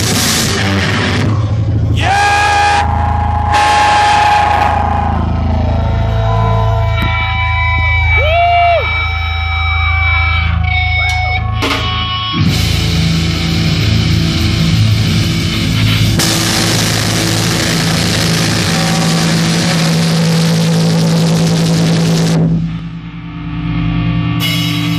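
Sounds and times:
live rock band playing: 0:00.0 - 0:01.6, 0:10.6 - 0:22.5.

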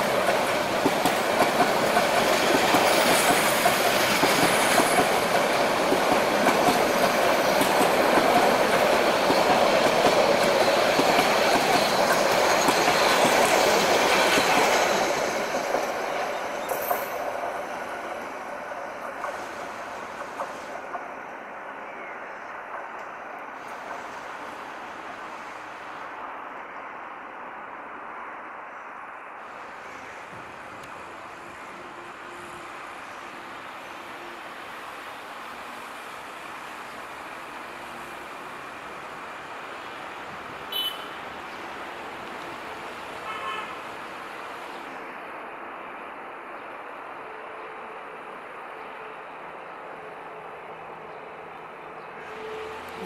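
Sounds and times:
city traffic: 0:00.0 - 0:53.0
train wheel and rail noise: 0:00.0 - 0:53.0
train horn toots: 0:40.7 - 0:41.2, 0:43.2 - 0:43.8, 0:52.2 - 0:53.0.

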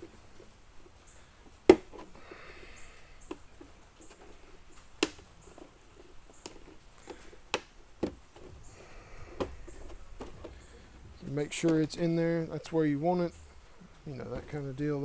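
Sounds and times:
handling rustle: 0:03.2 - 0:15.0
hard plastic clicking: 0:05.0 - 0:12.1.

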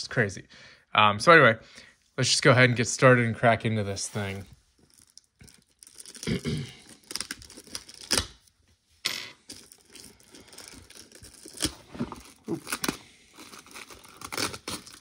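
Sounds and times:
plastic wrap tearing and crinkling: 0:04.0 - 0:08.6, 0:09.5 - 0:15.0.

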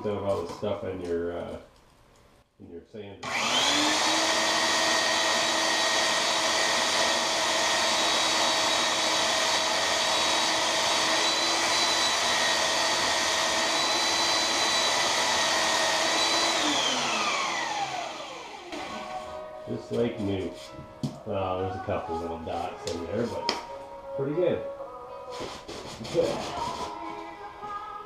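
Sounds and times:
belt sander whining: 0:03.2 - 0:19.4
rubber stick on sanding belt: 0:25.3 - 0:27.0.

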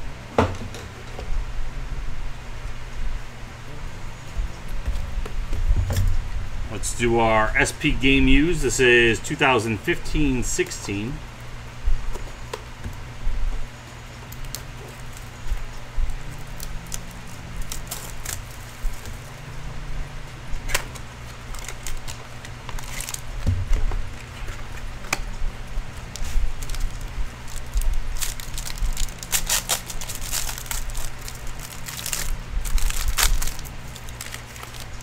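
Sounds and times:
foil wrapper crinkling and tearing: 0:14.2 - 0:19.4, 0:20.5 - 0:35.0.

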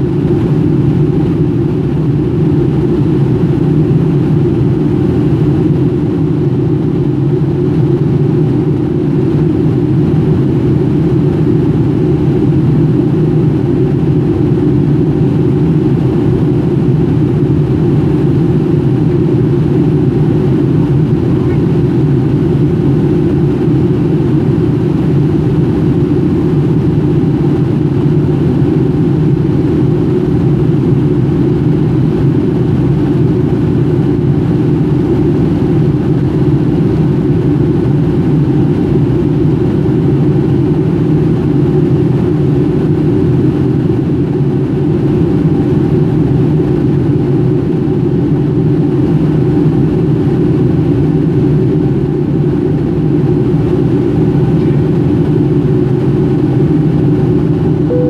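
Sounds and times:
air rushing along fuselage: 0:00.0 - 0:58.0
jet engines droning: 0:00.0 - 0:58.0.

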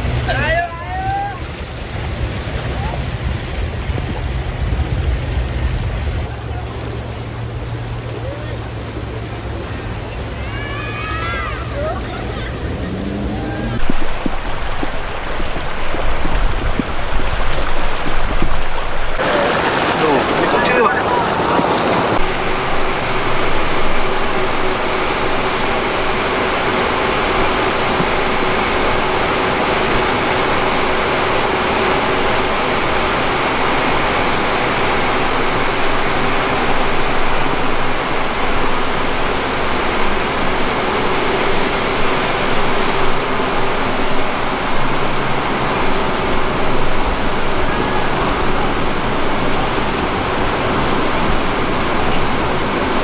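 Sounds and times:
constant hum: 0:00.0 - 0:53.0
pumps droning: 0:06.8 - 0:53.0
rushing noise: 0:12.6 - 0:53.0.

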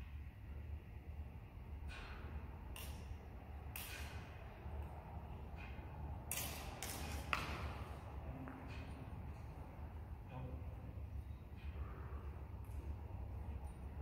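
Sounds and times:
sharp click of blades: 0:03.7 - 0:04.2.

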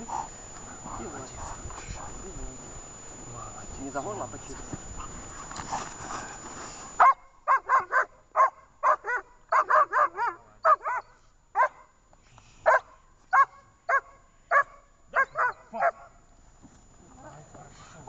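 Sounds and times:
dog barking: 0:07.0 - 0:11.9, 0:12.6 - 0:16.2.

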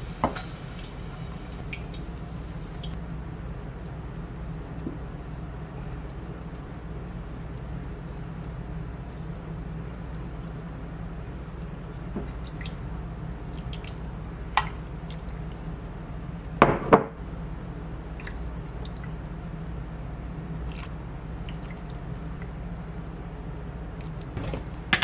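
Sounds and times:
liquid dripping and splashing: 0:00.0 - 0:03.0, 0:09.6 - 0:15.8, 0:20.6 - 0:22.5.

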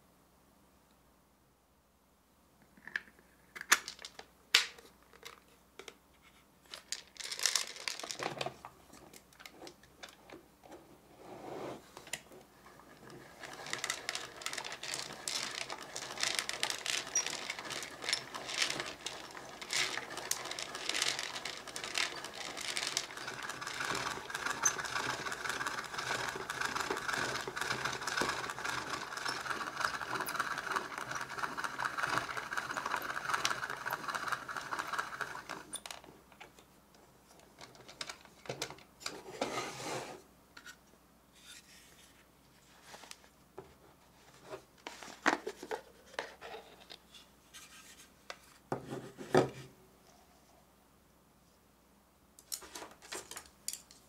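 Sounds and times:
popcorn tumbling in drum: 0:12.1 - 0:36.1
plastic crank and gears clicking: 0:13.0 - 0:36.0.

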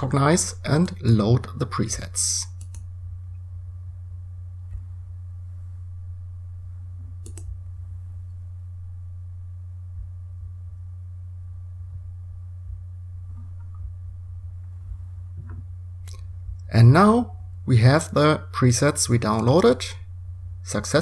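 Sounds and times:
low electrical hum: 0:00.0 - 0:21.0
sharp click: 0:02.6 - 0:02.9, 0:07.2 - 0:07.5.

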